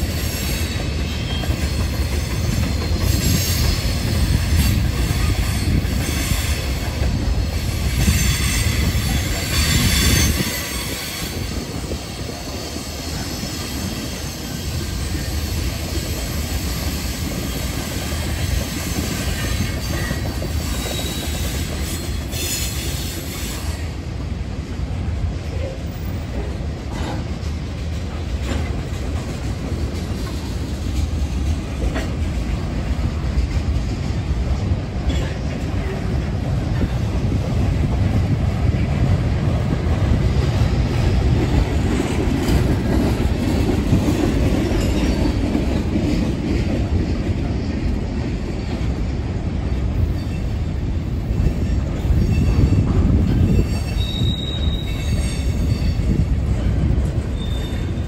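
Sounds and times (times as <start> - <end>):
train wheels rumbling on rail: 0.0 - 58.0
wheel squeal: 18.5 - 23.8, 51.6 - 56.2, 57.3 - 58.0.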